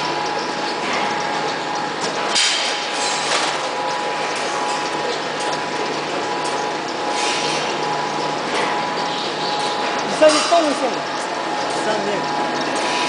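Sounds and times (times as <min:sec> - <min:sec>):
steady high hum: 0:00.0 - 0:13.0
packing machine clatter and clicking: 0:02.0 - 0:05.6.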